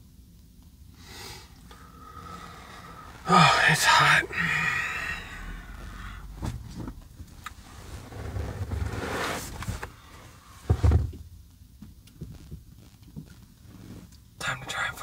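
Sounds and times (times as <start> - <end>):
heavy low thump: 5.0 - 8.4.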